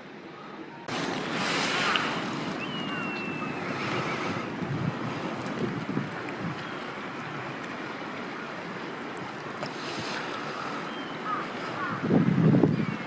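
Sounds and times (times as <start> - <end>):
lapping sea water: 0.0 - 13.0
wind buffeting microphone: 0.9 - 7.5, 11.2 - 13.0
faint high whistle: 2.6 - 3.7.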